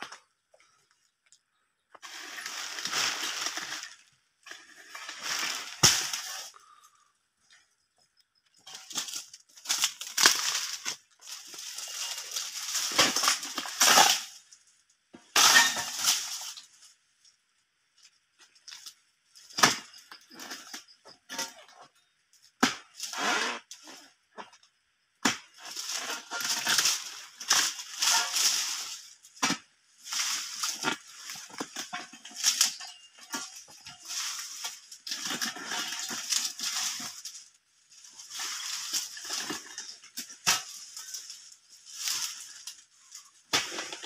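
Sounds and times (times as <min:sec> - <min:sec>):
blade chopping fronds: 0:08.8 - 0:14.3.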